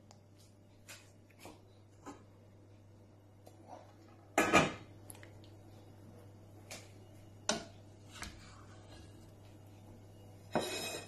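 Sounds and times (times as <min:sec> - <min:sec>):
kitchenware clattering: 0:04.4 - 0:04.9, 0:10.5 - 0:11.0.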